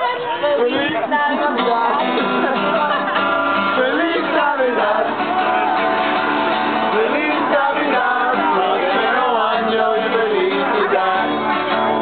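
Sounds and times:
strummed acoustic guitar: 0.0s - 12.0s
group singing a carol: 2.4s - 12.0s.

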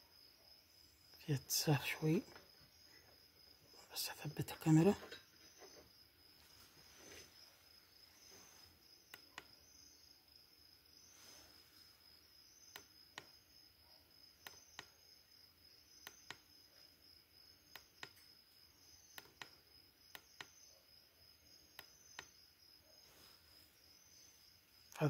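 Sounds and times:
cricket trill: 0.0s - 25.0s
sharp clicks in pairs: 12.7s - 13.3s, 17.7s - 18.3s, 20.2s - 20.6s.

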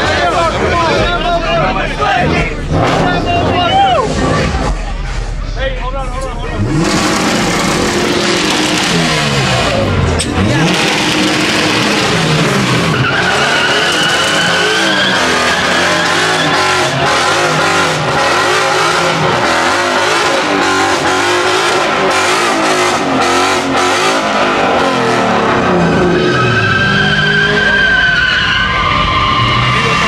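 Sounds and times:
car engine revving: 0.0s - 30.0s
tyres squealing: 10.4s - 21.5s.

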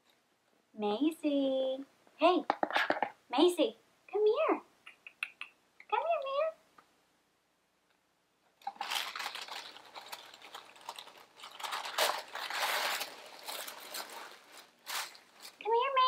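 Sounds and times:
tissue paper rustling: 8.6s - 16.0s.

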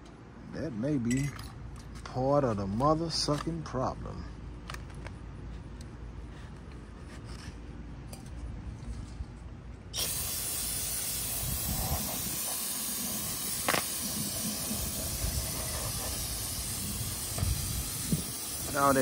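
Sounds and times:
aerosol can spraying: 10.0s - 19.0s.

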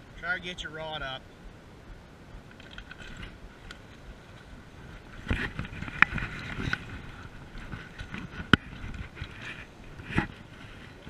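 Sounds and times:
water splashing and sloshing: 2.4s - 11.0s.

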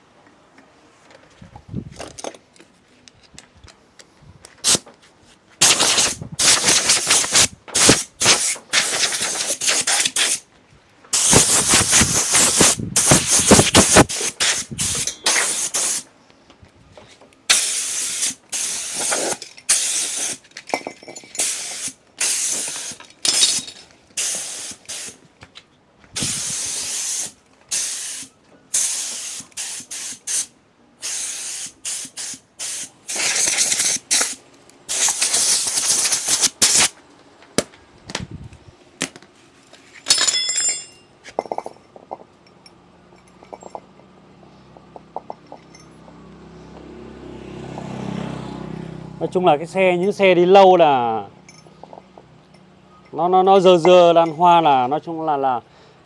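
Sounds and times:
pressurised spray hissing: 11.1s - 16.1s, 17.5s - 20.4s, 21.4s - 23.0s, 24.2s - 25.2s, 26.2s - 36.9s.

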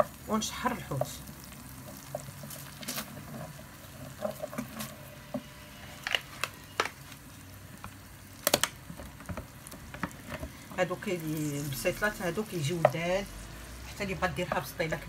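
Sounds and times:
low sizzle: 0.0s - 15.0s
spoon knocking and scraping pan: 1.8s - 5.6s.

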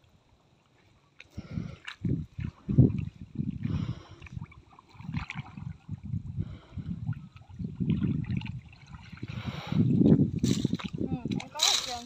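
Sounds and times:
muddy water sloshing and splashing: 0.0s - 12.0s.

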